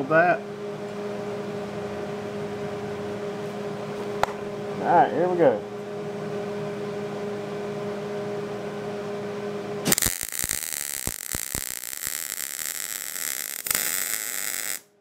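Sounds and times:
steady hum: 0.0 - 15.0
welding arc crackling hiss: 9.8 - 14.9.

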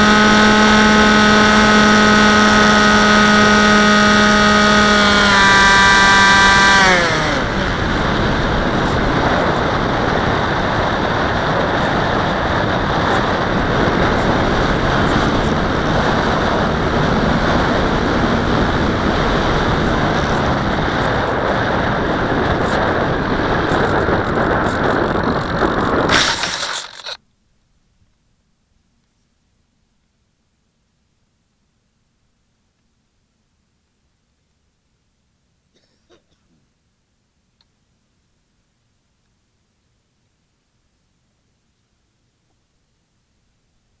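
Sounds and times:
electric motor whining: 0.0 - 7.8, 26.1 - 27.2
rush of wind noise: 6.8 - 27.2.

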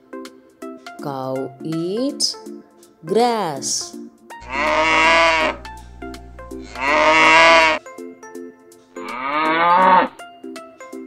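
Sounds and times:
light children's music: 0.0 - 5.0, 5.8 - 11.0
cow mooing: 4.4 - 7.8, 9.0 - 10.2.

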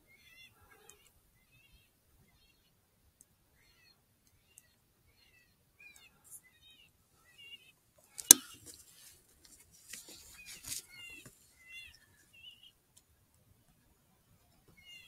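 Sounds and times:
handling rustle: 8.2 - 11.5.

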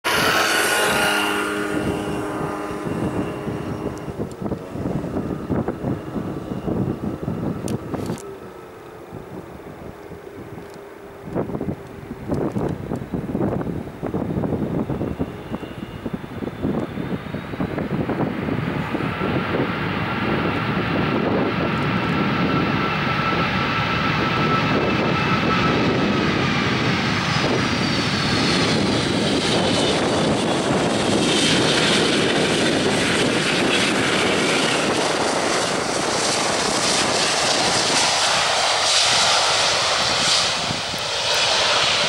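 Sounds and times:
jet engines rumbling: 0.0 - 42.0
hissing rush of rolling jet: 26.0 - 42.0.

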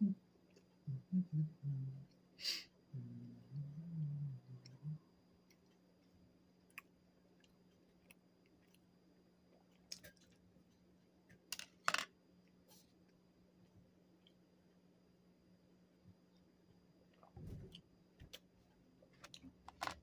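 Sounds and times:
steady low hum: 0.0 - 20.0
chewing mouth clicks and smacks: 5.4 - 8.9.

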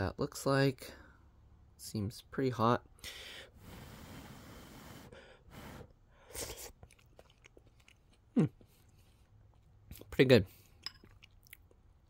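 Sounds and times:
breathy exhale: 3.0 - 6.4
short breaths: 3.0 - 6.7
person chewing: 5.8 - 12.0.

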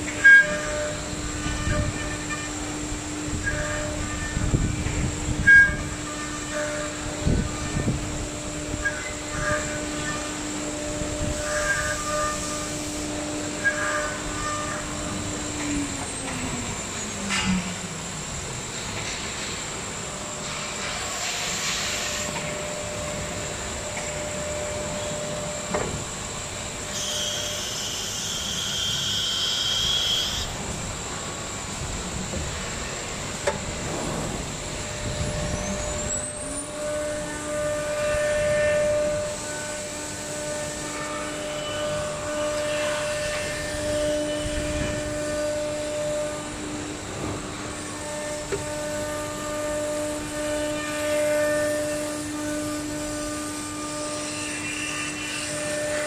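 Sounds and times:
compressed air hiss: 20.4 - 22.4
spindle whine: 31.5 - 54.2.

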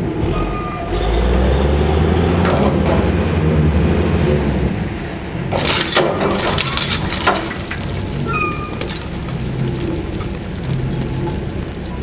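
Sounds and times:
low machinery drone: 0.0 - 12.0
rock crunching against steel bucket: 5.5 - 12.0.

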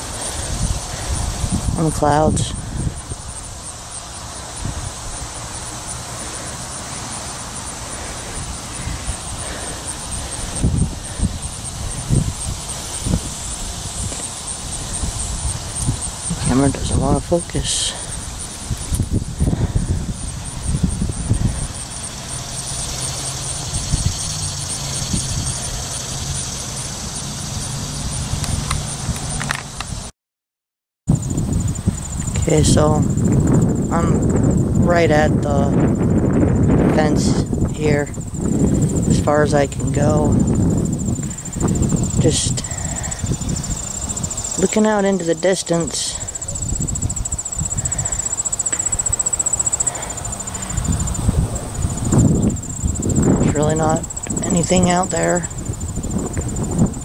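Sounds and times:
insects trilling: 0.0 - 30.1, 31.1 - 57.0
wind buffeting microphone: 0.0 - 30.1, 31.1 - 57.0
high-pitched pulsing: 31.2 - 57.0
low hum: 31.2 - 57.0.

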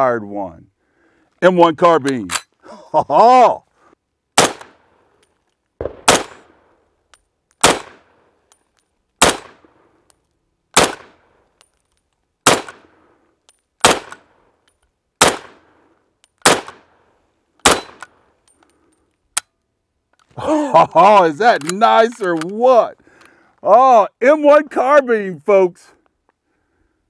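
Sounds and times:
rifle shots with echo: 4.4 - 4.9, 5.8 - 6.8, 7.6 - 8.2, 9.2 - 9.8, 10.7 - 11.3, 12.4 - 13.0, 13.8 - 14.3, 15.2 - 15.7, 16.4 - 17.0, 17.6 - 18.2.

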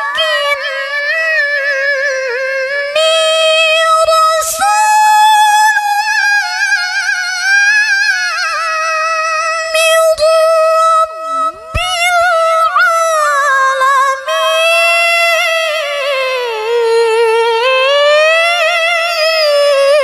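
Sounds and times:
woman chanting into microphone: 9.5 - 20.0.

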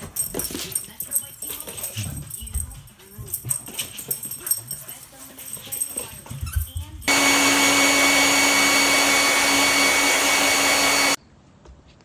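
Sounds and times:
hair dryer whining: 7.1 - 11.2.

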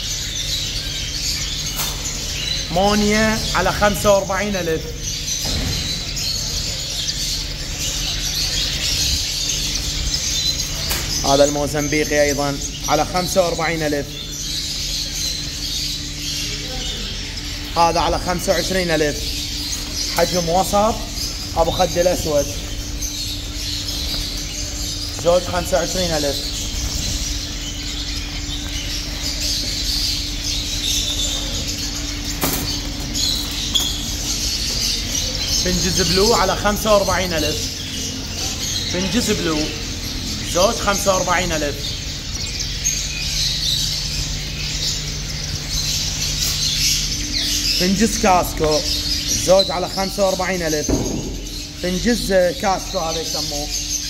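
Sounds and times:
finches chirping: 0.0 - 54.0
steady low hum: 0.0 - 54.0.

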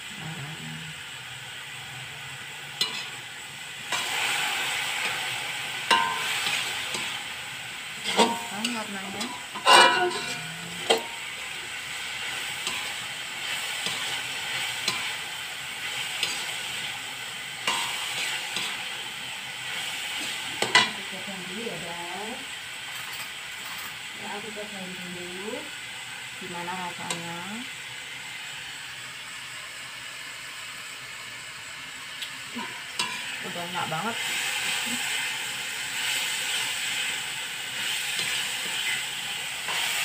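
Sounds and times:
food sizzling in a wok: 0.0 - 40.0
metal spatula scraping wok: 2.7 - 21.0, 32.6 - 40.0
spatula clacking against wok: 5.9 - 7.2.

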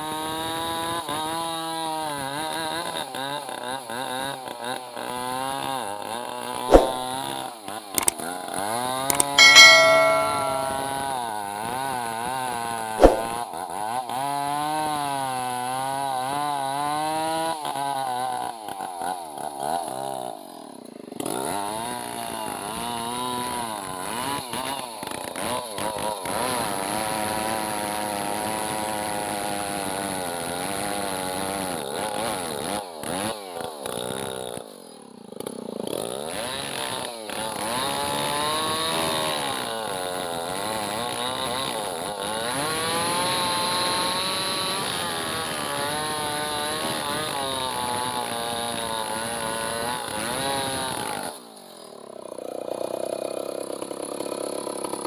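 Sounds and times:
sharp click: 6.7 - 7.0, 13.0 - 13.3.

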